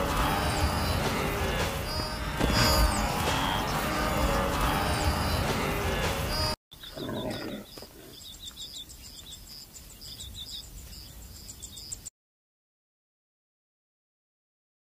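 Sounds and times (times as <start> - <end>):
loud music: 0.0 - 6.6
birds chirping and trilling: 0.0 - 12.1
low growl: 6.9 - 8.1.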